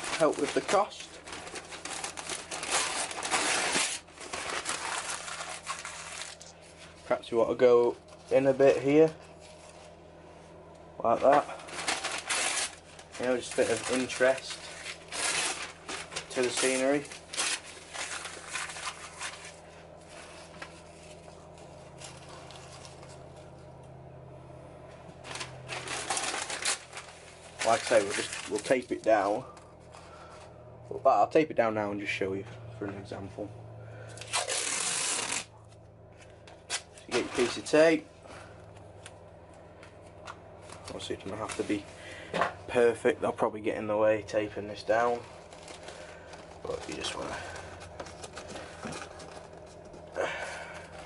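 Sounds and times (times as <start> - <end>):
newspaper being scrunched: 0.0 - 7.2, 11.1 - 23.2, 25.2 - 29.4, 34.1 - 35.5, 36.7 - 38.0, 40.6 - 41.9, 44.7 - 51.0
paper rustling: 0.0 - 7.2, 11.1 - 23.5, 25.2 - 30.4, 34.3 - 37.8, 40.0 - 41.9, 44.9 - 51.0.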